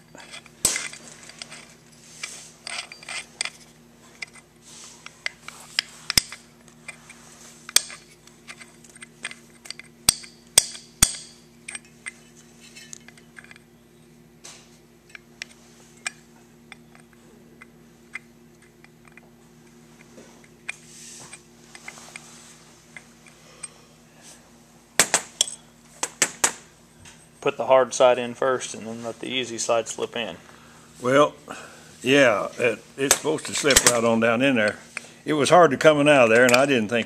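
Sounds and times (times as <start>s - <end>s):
steady low hum: 0.0s - 37.0s
small metal clicks and scrapes: 0.1s - 10.3s.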